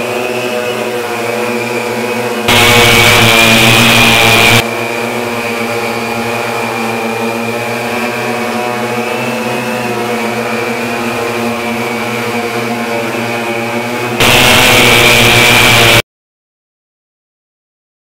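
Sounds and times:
hexacopter motors buzzing: 2.3 - 7.6, 14.0 - 16.0.

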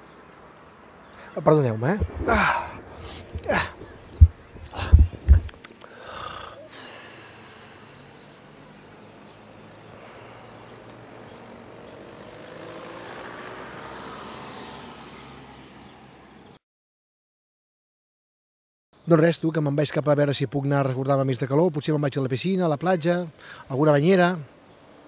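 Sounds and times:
open-air background noise: 0.0 - 16.6, 19.0 - 25.0
vehicle passing: 0.1 - 16.6.

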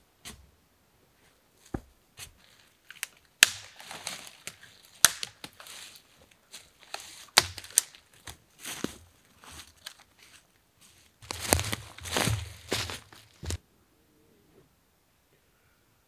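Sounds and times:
twigs and needles rustling: 1.2 - 13.6
branches snapping: 2.6 - 9.0, 9.6 - 10.4, 11.2 - 13.6.

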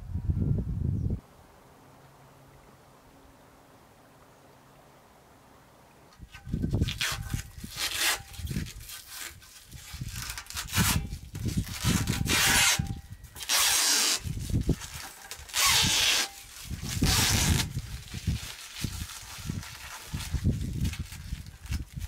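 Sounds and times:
plastic film tearing: 6.4 - 22.0.

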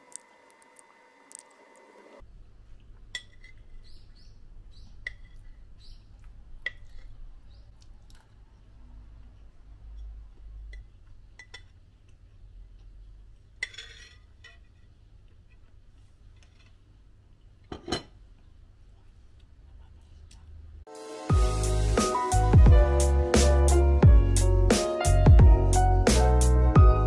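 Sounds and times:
metal spoon clinking on plate: 3.1 - 3.8.

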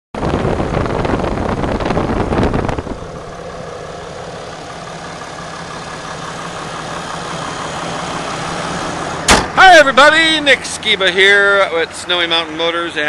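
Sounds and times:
diesel engine idling: 0.2 - 13.0.

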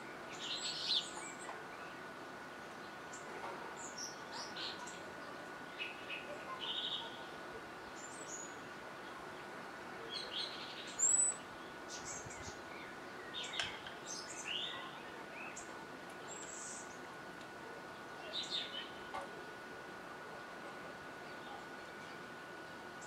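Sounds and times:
songbirds chirping and whistling: 0.0 - 19.7, 21.1 - 23.0.

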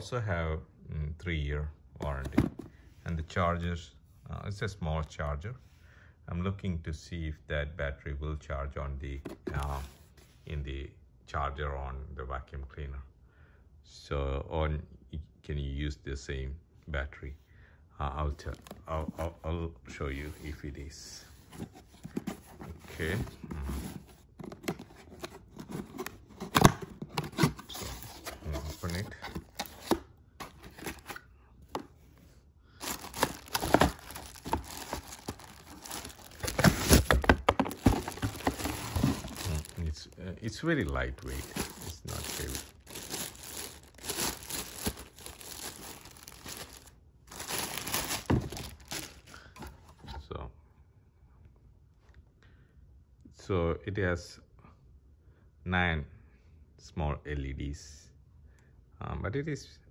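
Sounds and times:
cardboard rustling and scraping: 2.0 - 2.8, 9.2 - 10.4, 20.0 - 32.1, 32.8 - 50.1
plastic bag crinkling: 27.2 - 31.2, 32.8 - 49.3.

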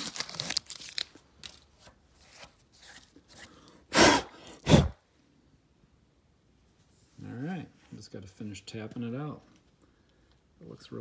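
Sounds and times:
tape crinkling and rustling: 0.0 - 3.6.

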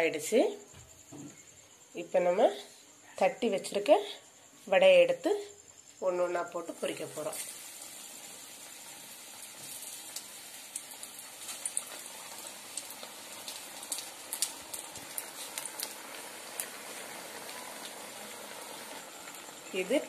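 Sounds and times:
deep-frying sizzle with pops: 6.0 - 20.0.

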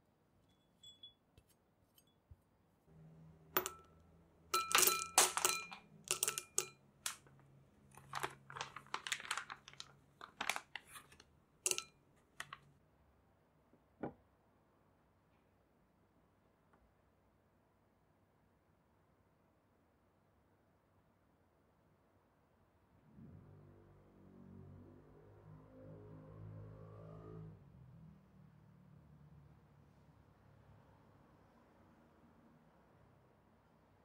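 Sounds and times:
chocolate clinking into glass bowl: 3.6 - 3.9, 4.5 - 7.3, 8.0 - 12.6.

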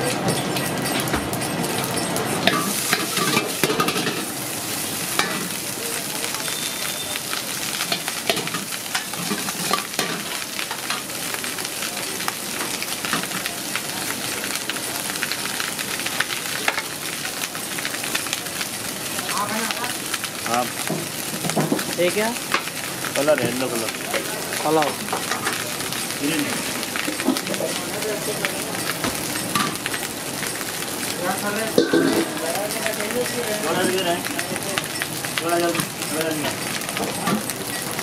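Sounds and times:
hot oil sizzling: 0.0 - 38.0.

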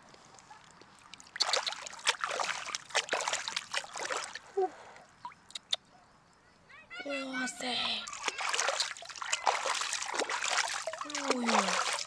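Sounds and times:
water splashing and sloshing: 0.0 - 5.5, 7.8 - 12.0
sharp clicks: 5.5 - 5.8.

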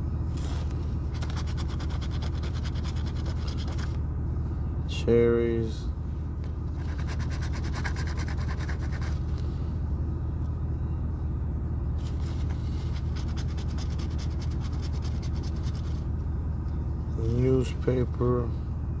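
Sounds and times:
car rumble: 0.0 - 19.0
coin scraping scratch card: 0.4 - 4.0, 6.8 - 9.2, 12.0 - 16.0.

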